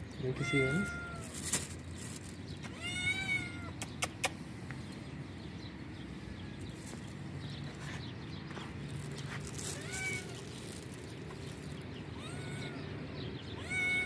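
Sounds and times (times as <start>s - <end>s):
cat meowing: 0.4s - 1.4s, 2.7s - 3.8s, 9.7s - 10.4s, 12.1s - 14.0s.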